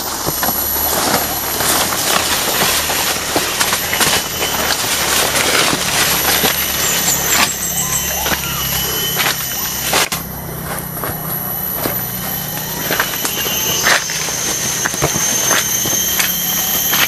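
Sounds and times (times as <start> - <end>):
footsteps through undergrowth: 0.0 - 17.0
steady low hum: 0.0 - 17.0
leaves and stems swishing: 0.1 - 17.0
short high chirps: 3.8 - 10.6.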